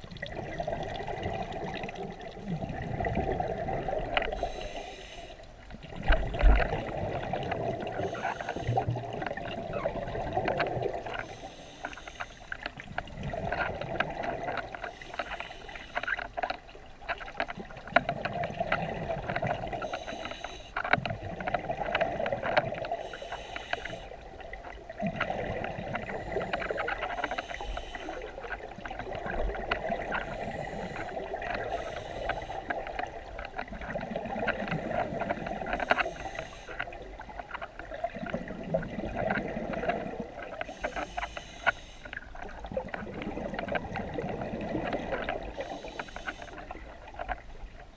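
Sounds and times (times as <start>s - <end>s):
exhaled bubbles rushing: 0.0s - 4.3s, 5.8s - 8.1s, 8.7s - 11.1s, 24.9s - 26.8s, 37.9s - 40.6s, 42.5s - 45.5s
regulator inhalation hiss: 4.3s - 5.4s, 8.0s - 8.8s, 11.2s - 12.5s, 14.9s - 16.1s, 19.8s - 20.8s, 23.0s - 24.1s, 26.1s - 28.2s, 30.2s - 32.7s, 35.8s - 36.8s, 40.7s - 42.1s, 45.6s - 46.6s.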